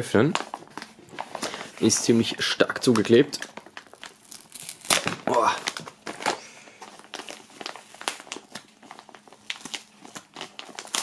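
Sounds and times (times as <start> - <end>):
padded envelope crinkling: 0.2 - 11.0
envelope flap tearing open: 3.5 - 6.4.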